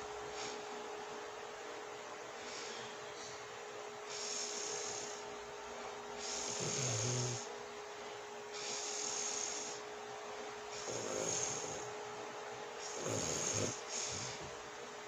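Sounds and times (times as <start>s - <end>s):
woman snoring: 6.3s - 7.5s, 10.8s - 11.9s, 12.8s - 14.4s.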